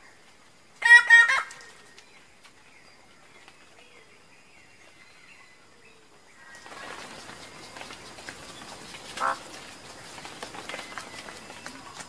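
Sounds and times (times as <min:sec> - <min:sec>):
background hiss: 0:00.0 - 0:12.0
bird calling harshly: 0:09.2 - 0:09.5.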